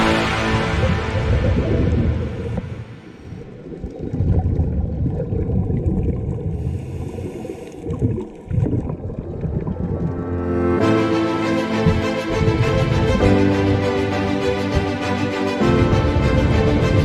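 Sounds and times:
water gurgling: 0.0s - 10.5s, 11.7s - 14.9s
muffled underwater rumble: 0.5s - 10.4s.

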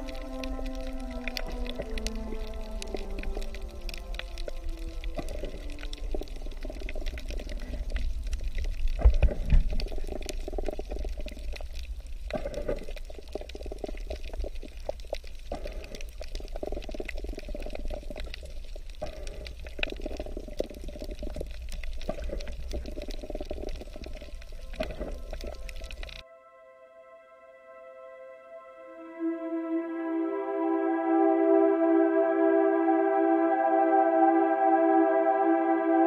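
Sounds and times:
muffled underwater bubbling: 0.0s - 26.2s.

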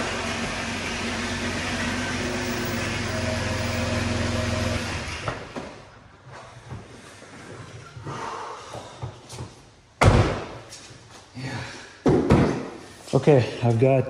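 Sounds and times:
car engine running: 0.0s - 5.3s.

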